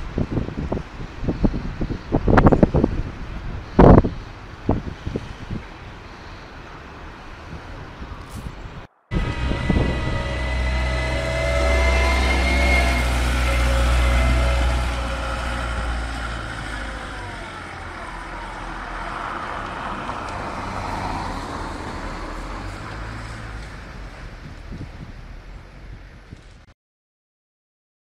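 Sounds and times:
engine whine: 8.0 - 26.1
diesel engine running: 9.1 - 26.1.

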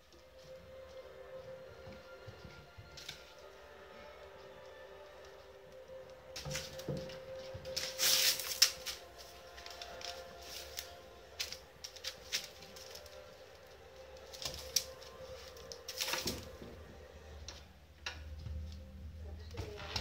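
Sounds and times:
rustling scrape: 7.7 - 13.1.

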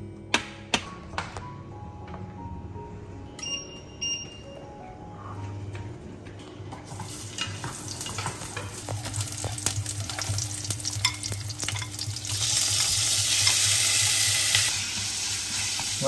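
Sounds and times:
garlic sizzling in hot oil: 7.0 - 16.0.

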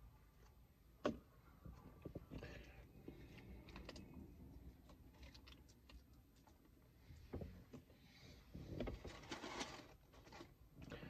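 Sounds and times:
faint clicks and rustles of eating: 1.6 - 7.9.

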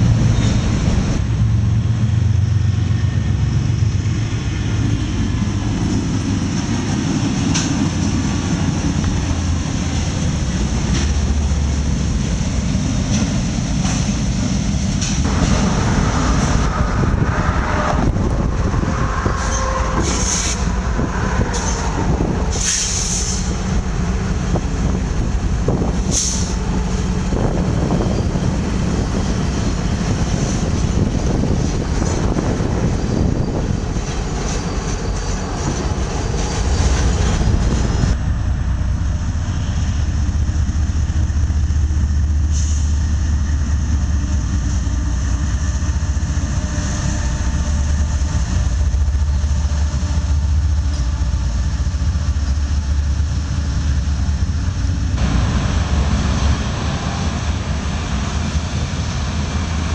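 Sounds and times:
diesel locomotive engines rumbling: 0.0 - 59.9
passing locomotives engines and wheels: 0.0 - 59.9.

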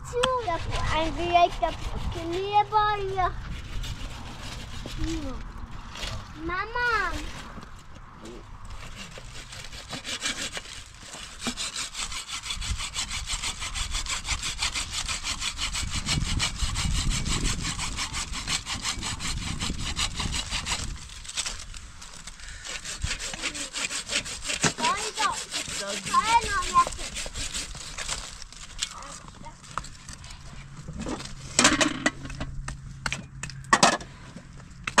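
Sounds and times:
saw cutting through wood: 0.0 - 6.2, 8.2 - 31.8.

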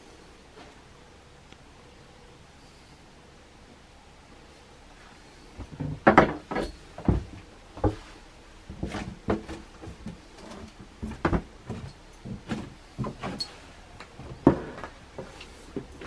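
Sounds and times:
soft knocks and thumps: 5.6 - 13.5.

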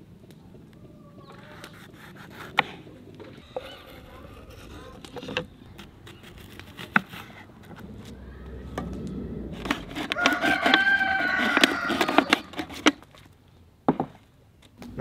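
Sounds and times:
rooster crowing: 9.3 - 12.5.

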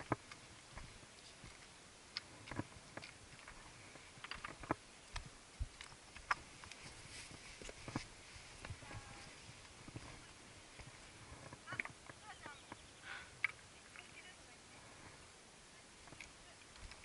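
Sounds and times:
footsteps on loose rock: 0.0 - 12.8.

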